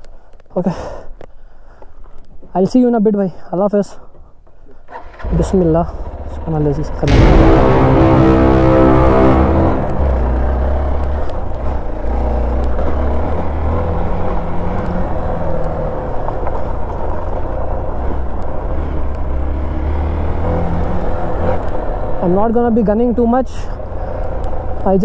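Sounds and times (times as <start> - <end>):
motorcycle engine rumbling: 4.8 - 19.8.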